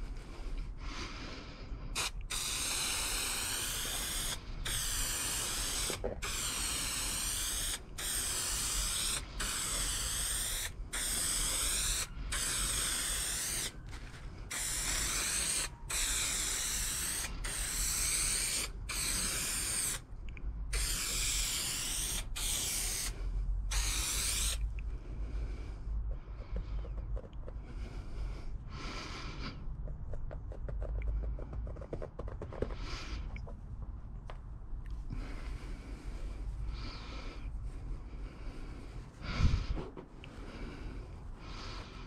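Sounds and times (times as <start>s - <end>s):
aerosol spray can hissing: 2.0s - 20.0s, 20.7s - 24.7s.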